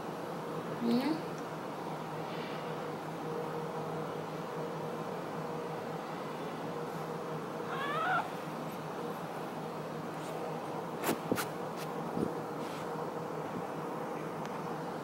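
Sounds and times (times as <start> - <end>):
steady low hum: 0.0 - 15.0
cat meowing: 7.7 - 8.3.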